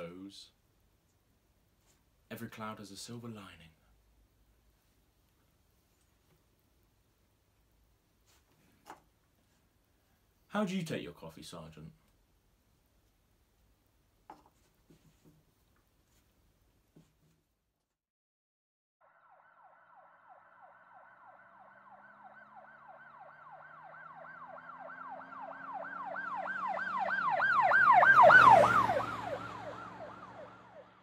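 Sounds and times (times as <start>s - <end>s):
emergency siren yelping: 19.0s - 31.0s
vehicle engine and road noise: 23.1s - 31.0s.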